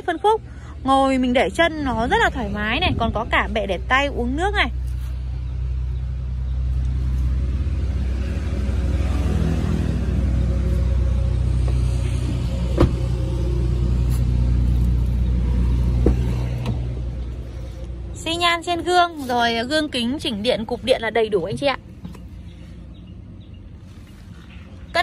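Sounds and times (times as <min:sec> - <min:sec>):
vehicle engine running: 0:00.0 - 0:25.0.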